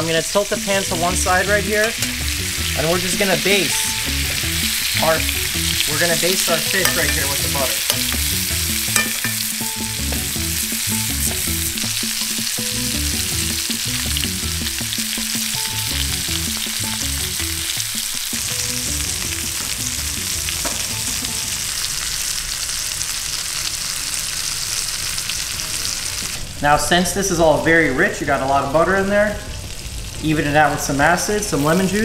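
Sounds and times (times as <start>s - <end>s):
fish sizzling in butter: 0.0s - 32.0s
spoon basting in pan: 1.8s - 13.5s.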